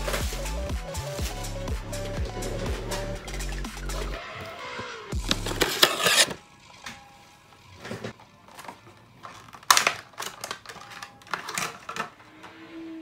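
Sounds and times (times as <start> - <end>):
plastic packaging crinkling: 8.5 - 12.1
sharp plastic cracks: 8.5 - 12.1.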